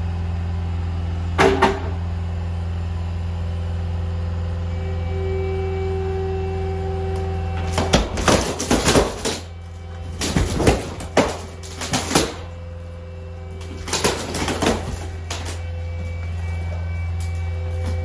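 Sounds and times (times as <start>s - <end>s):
loader engine running: 0.0s - 18.0s
wood cracking and splintering: 7.6s - 12.7s, 13.5s - 18.0s.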